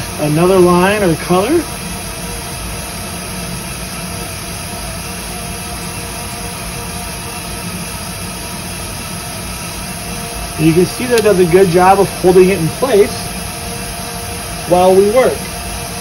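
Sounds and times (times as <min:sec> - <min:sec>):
toy robot motors humming: 0:03.4 - 0:16.0.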